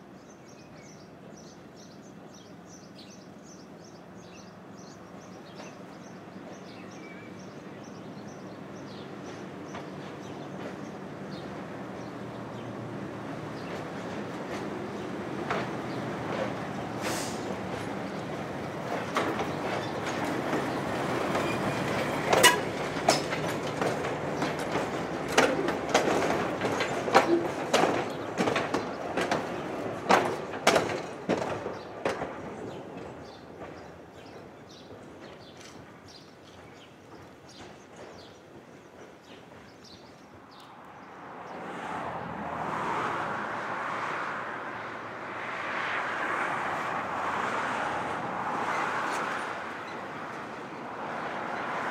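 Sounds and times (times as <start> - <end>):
train wheels clacking over rail joints: 4.8 - 40.7.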